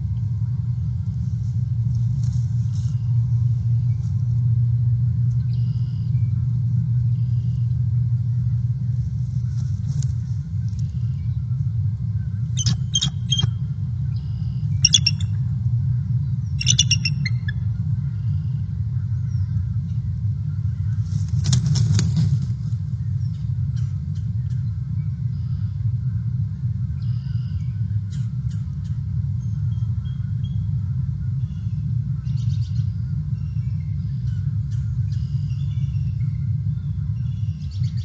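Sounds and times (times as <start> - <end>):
low rumble: 0.0 - 38.0
eagle chittering: 10.4 - 18.1.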